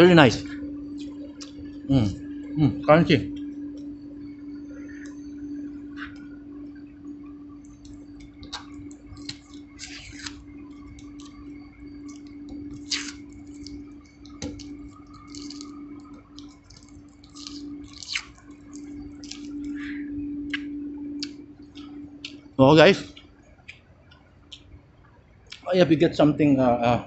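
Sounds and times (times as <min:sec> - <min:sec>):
low hum: 0:00.0 - 0:27.0
crunchy chewing: 0:07.6 - 0:24.7.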